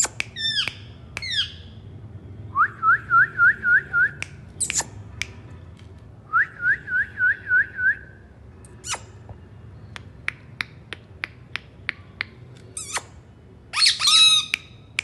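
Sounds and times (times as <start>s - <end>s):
parakeet falling calls: 13.8s - 14.6s.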